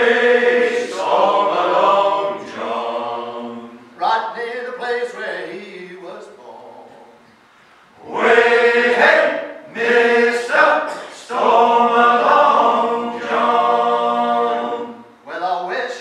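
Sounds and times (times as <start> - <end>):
male choir singing unaccompanied: 0.0 - 3.9, 8.0 - 15.1.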